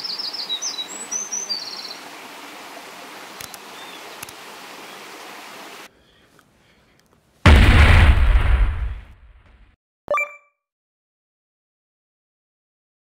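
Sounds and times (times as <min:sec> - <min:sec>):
mountain stream rushing: 0:00.0 - 0:05.9
faint clicks: 0:03.4 - 0:03.6, 0:06.3 - 0:07.2.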